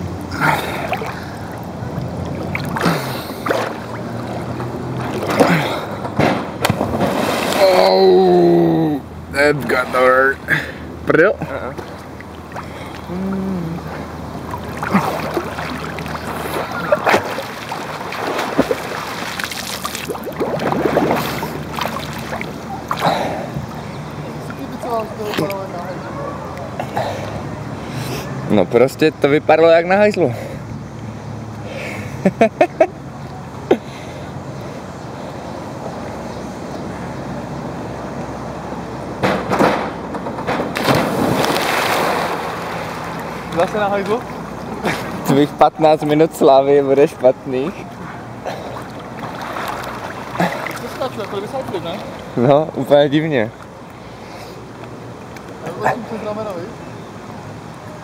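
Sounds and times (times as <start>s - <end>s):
pool water sloshing and splashing: 0.0s - 8.4s, 9.5s - 27.6s, 40.4s - 58.0s
diving springboard banging: 1.9s - 7.9s, 14.5s - 23.7s, 39.2s - 44.3s
loud splash into water: 5.0s - 7.9s, 14.6s - 23.4s, 40.8s - 43.2s.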